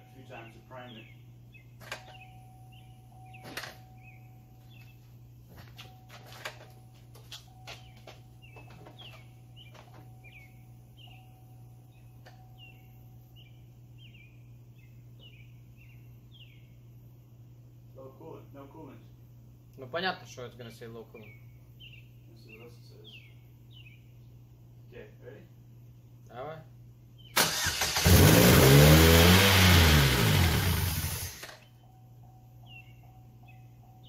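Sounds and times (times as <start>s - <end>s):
small birds chirping: 0.0s - 5.2s, 7.5s - 17.2s, 17.9s - 27.4s, 32.6s - 34.0s
low steady hum: 0.0s - 27.4s, 30.6s - 34.0s.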